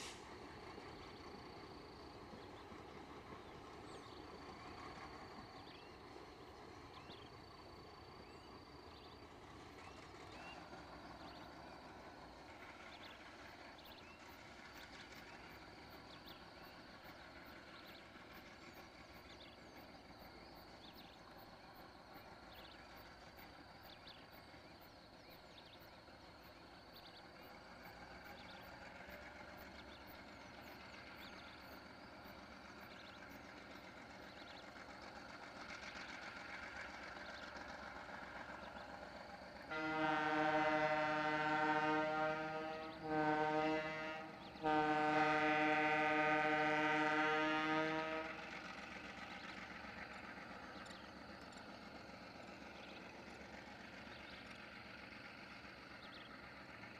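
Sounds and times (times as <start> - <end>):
distant freight train running: 0.0 - 56.9
locomotive horn blasts: 39.7 - 48.6.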